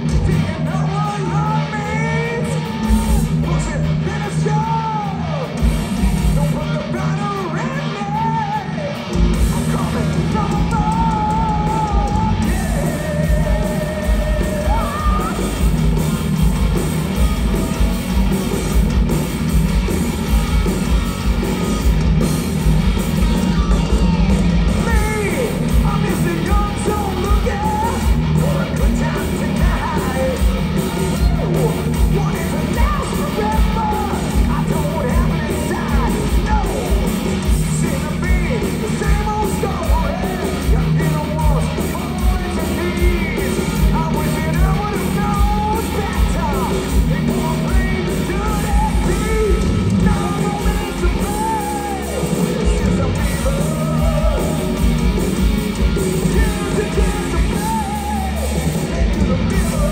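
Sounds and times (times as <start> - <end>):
heavy metal band playing live: 0.0 - 59.9.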